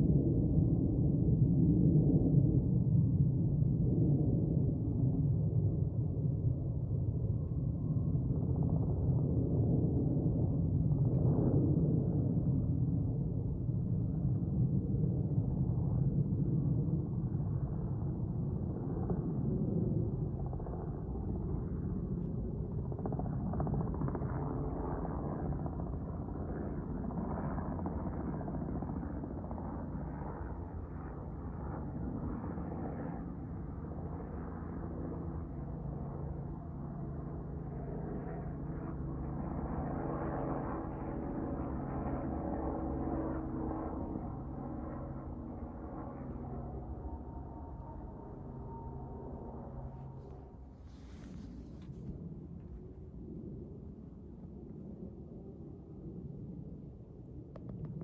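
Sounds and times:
jet airliner flying overhead: 0.0s - 58.0s
steady droning hum: 41.8s - 56.6s.

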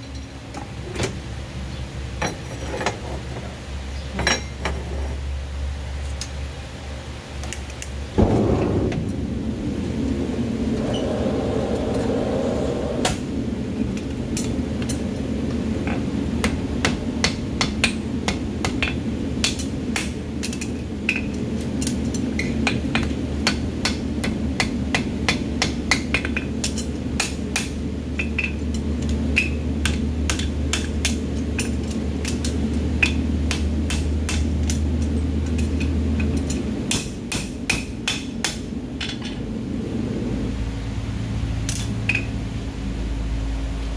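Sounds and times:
low rumble: 8.1s - 14.8s.

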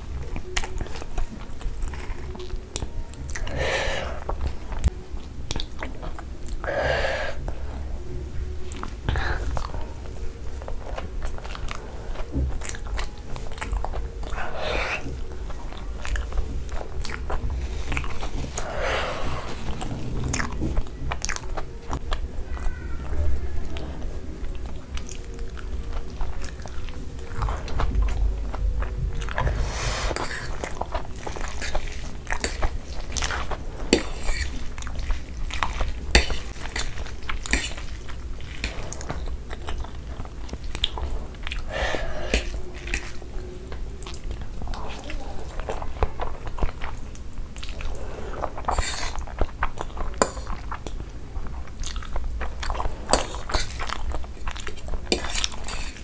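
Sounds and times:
chewing and biting food: 0.0s - 6.8s, 7.4s - 56.0s.

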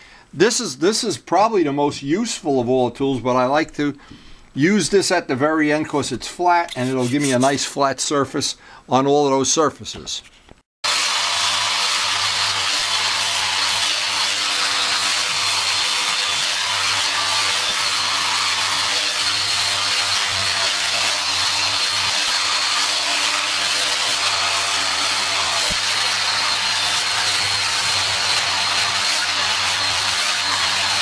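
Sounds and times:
sander hissing on metal: 6.7s - 7.6s, 10.9s - 31.0s
sander motor whine: 10.9s - 31.0s.

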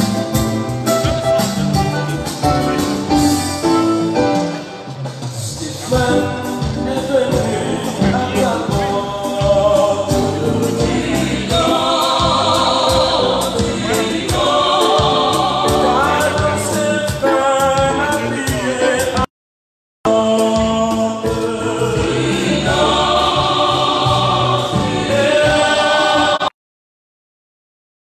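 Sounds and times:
electronic keyboard with beat: 0.0s - 5.0s
small choir singing: 6.9s - 18.4s, 20.1s - 26.6s.

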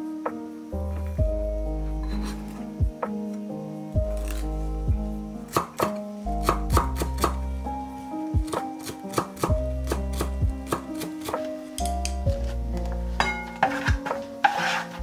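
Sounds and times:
soft background music: 0.0s - 15.0s
knife chopping on wooden board: 5.5s - 7.4s, 8.4s - 11.4s.

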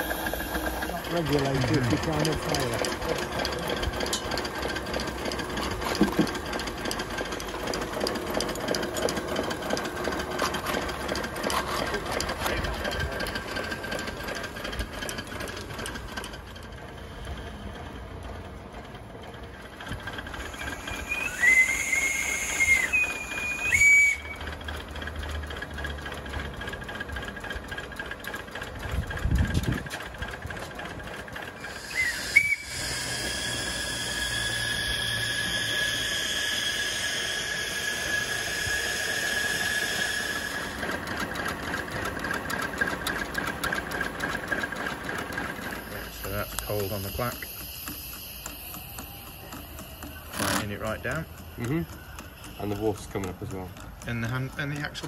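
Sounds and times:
steam locomotive chuffing: 0.0s - 55.0s
steam whistle blasts: 20.5s - 24.5s, 31.6s - 40.8s.

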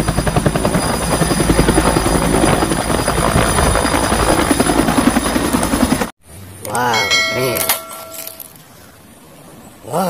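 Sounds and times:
helicopter rotor beating: 0.0s - 6.1s
helicopter turbine whine: 0.0s - 8.5s.

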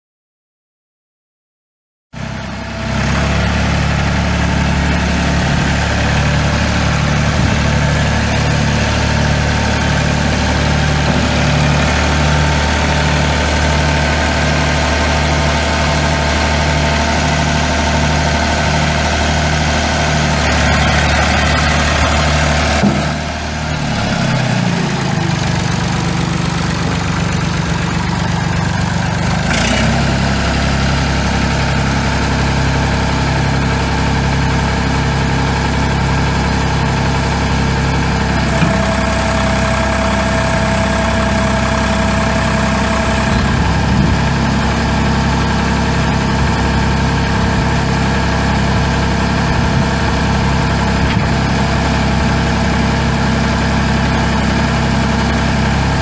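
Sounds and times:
diesel engine idling: 2.2s - 56.0s
steady whine: 38.4s - 44.7s.

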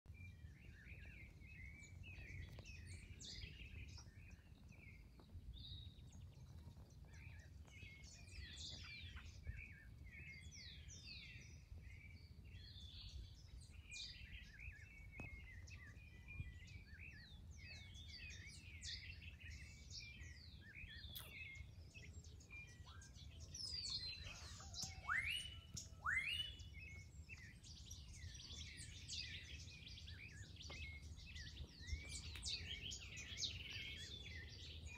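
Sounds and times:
birds chirping and trilling: 0.1s - 34.9s.

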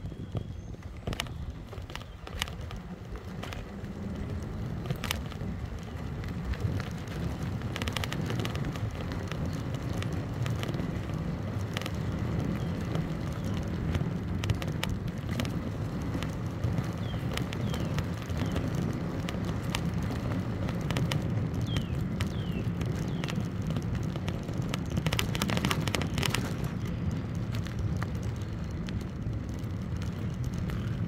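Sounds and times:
wind and tyre rumble: 0.0s - 31.0s
sharp clicks and rattles: 0.3s - 31.0s.

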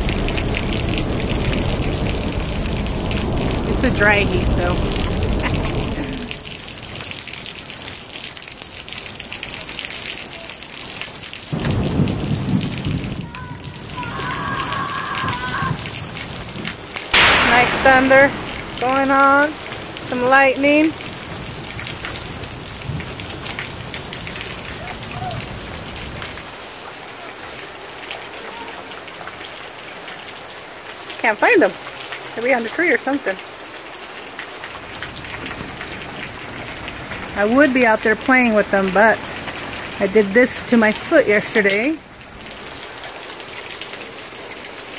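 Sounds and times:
low rumble: 0.0s - 6.8s, 17.2s - 20.2s
rain on wet pavement: 0.0s - 44.9s.

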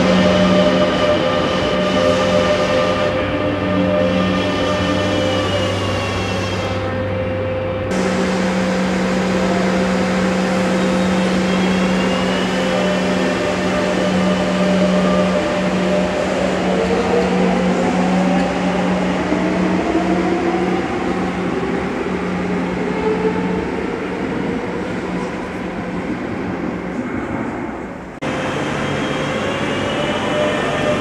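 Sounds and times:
traction motor whine rising: 7.9s - 15.5s
electric train pulling out: 7.9s - 21.9s.

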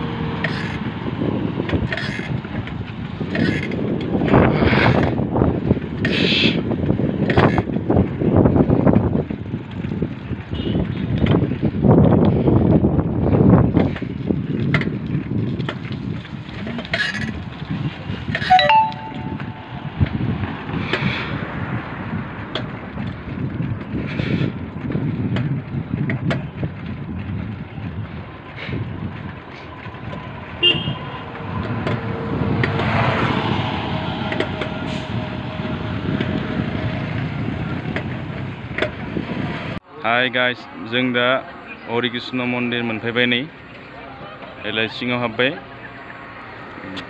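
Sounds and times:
wind buffeting microphone: 0.0s - 18.4s, 19.2s - 39.8s
motorcycle rumble: 0.0s - 39.8s
vehicle horn toot: 10.6s - 10.8s, 30.6s - 31.0s
horn beep: 18.4s - 19.8s.

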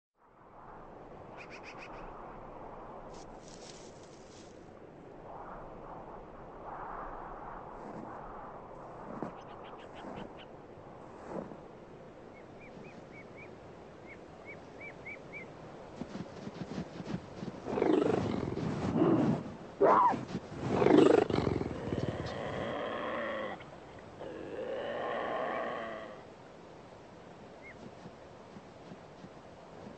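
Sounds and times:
wild cats harsh cries: 19.8s - 26.2s.

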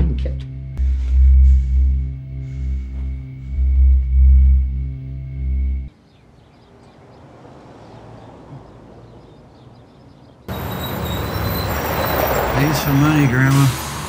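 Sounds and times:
street noise: 5.8s - 14.0s.

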